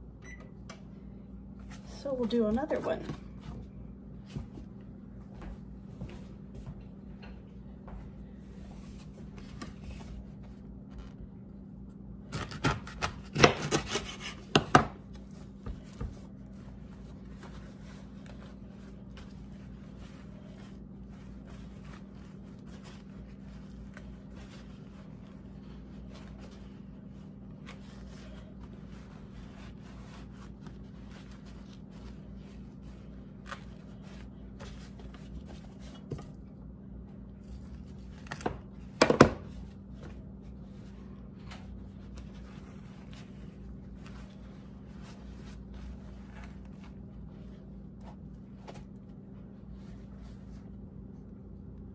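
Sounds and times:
steady low hum: 0:00.0 - 0:51.9
knife chopping on wooden board: 0:12.3 - 0:15.0.

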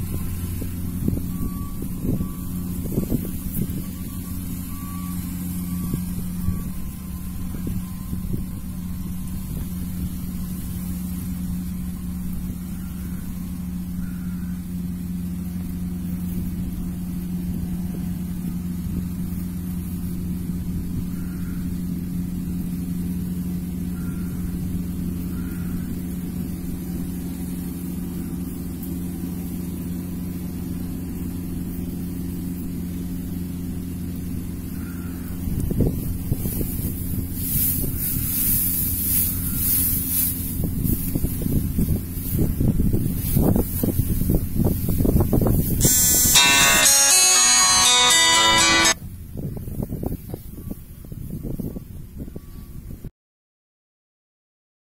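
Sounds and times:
combine harvester droning: 0:00.0 - 0:49.0.

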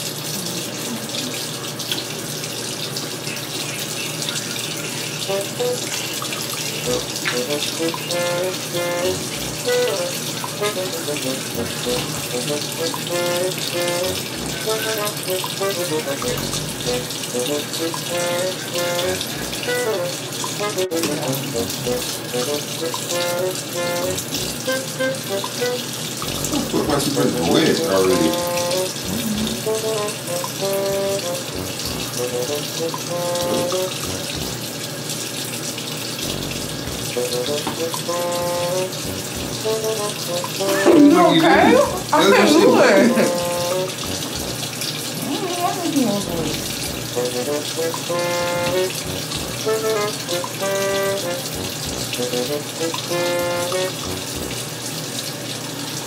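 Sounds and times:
background music: 0:06.8 - 0:34.7, 0:36.2 - 0:44.8, 0:46.2 - 0:54.7
tap running into sink: 0:36.2 - 0:40.7.

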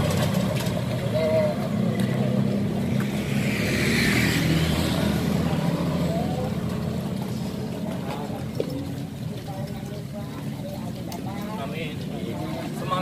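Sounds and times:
vehicle passing by: 0:00.0 - 0:08.0.

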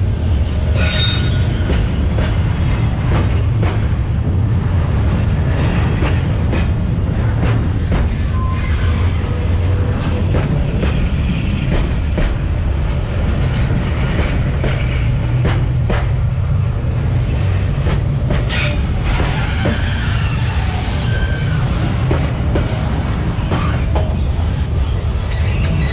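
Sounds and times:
freight train rumbling past: 0:00.0 - 0:25.9
train wheel squeal: 0:00.8 - 0:01.8, 0:08.2 - 0:09.5, 0:15.8 - 0:21.8, 0:23.5 - 0:25.9.

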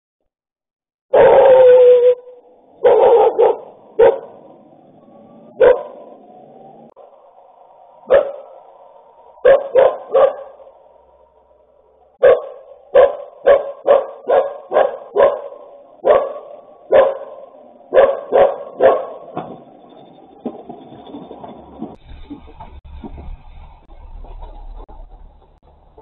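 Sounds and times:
dog barking: 0:01.1 - 0:02.1, 0:02.8 - 0:04.4, 0:05.6 - 0:06.1, 0:08.1 - 0:08.6, 0:09.4 - 0:10.7, 0:12.2 - 0:19.4.

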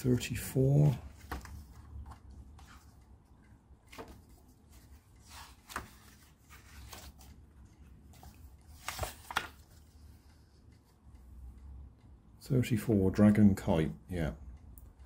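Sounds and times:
book pages rustling: 0:00.6 - 0:10.9.

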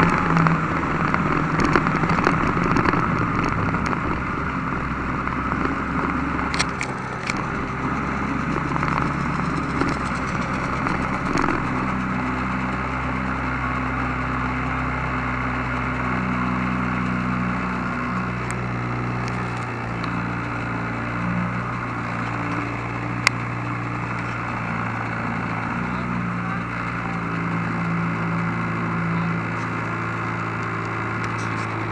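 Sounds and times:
sharp clicks: 0:00.0 - 0:12.0
snowmobile engine running: 0:00.0 - 0:31.9.

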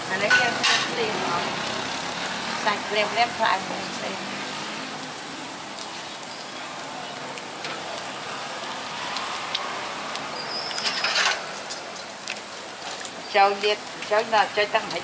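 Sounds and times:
meat sizzling on a grill: 0:00.0 - 0:15.0.

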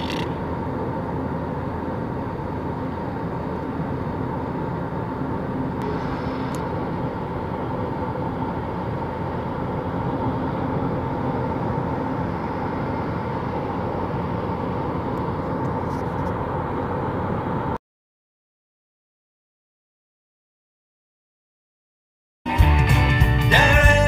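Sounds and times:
car road and engine noise: 0:00.0 - 0:17.8.

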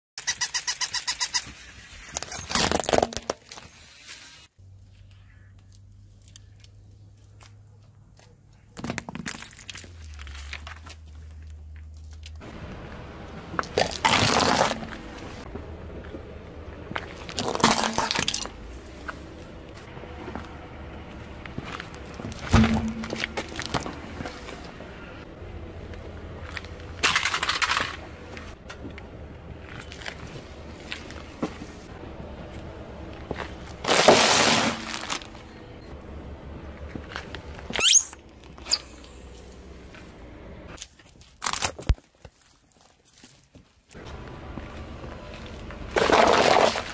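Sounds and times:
squeaky toy squealing: 0:00.2 - 0:01.6, 0:02.2 - 0:02.8, 0:37.8 - 0:38.8
objects crunching under car tyre: 0:01.4 - 0:03.8, 0:08.7 - 0:12.8, 0:13.4 - 0:25.3, 0:26.4 - 0:31.9, 0:32.5 - 0:35.6, 0:40.7 - 0:46.9.

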